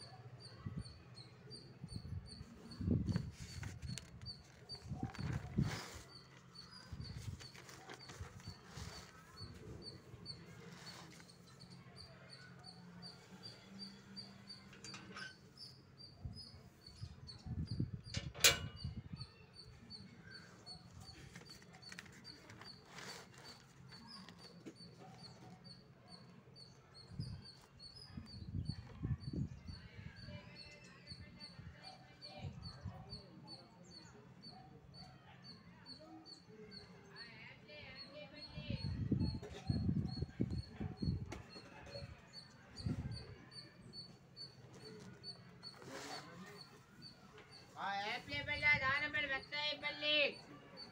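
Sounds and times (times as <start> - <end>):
notebook pages rustling: 3.2 - 9.3, 21.2 - 24.5.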